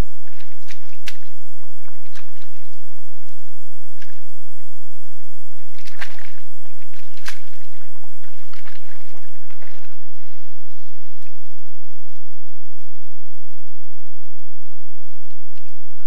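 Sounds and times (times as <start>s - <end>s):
faint steady hum: 0.0s - 16.0s
boar squelching in mud: 5.6s - 10.5s.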